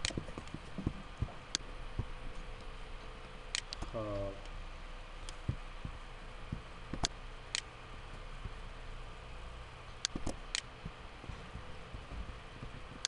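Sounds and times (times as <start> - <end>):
computer mouse clicking: 0.0 - 0.9, 3.5 - 3.9, 6.9 - 7.7, 10.0 - 11.0
low steady hum: 0.0 - 13.0.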